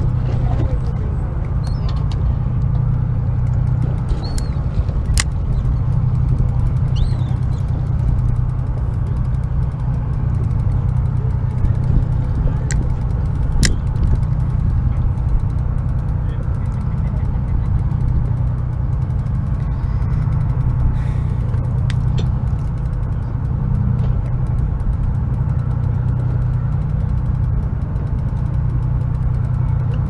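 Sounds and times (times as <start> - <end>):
boat engine rumbling: 0.0 - 30.0
low hum: 0.0 - 30.0
sharp ticks: 1.7 - 30.0.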